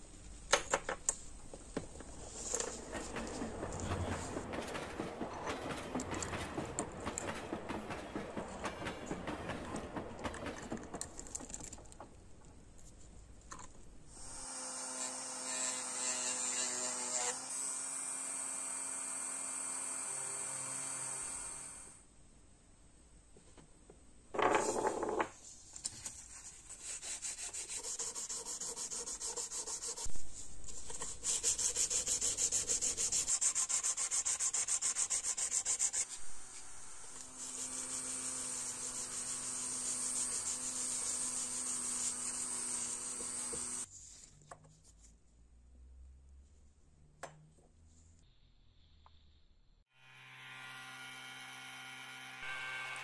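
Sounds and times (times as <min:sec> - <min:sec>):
sandpaper sanding brass: 0:26.3 - 0:30.1, 0:30.7 - 0:36.2, 0:37.3 - 0:43.9.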